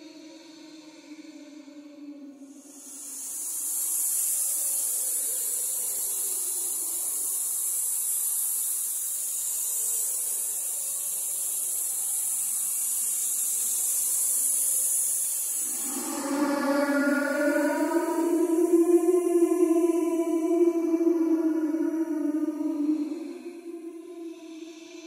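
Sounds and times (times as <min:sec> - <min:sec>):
faint low drone: 0:15.6 - 0:25.0.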